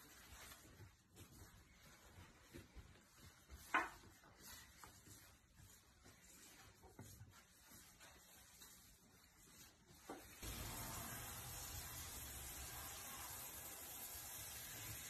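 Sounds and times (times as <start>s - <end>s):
cat paws scraping on a wall: 0.0s - 11.1s.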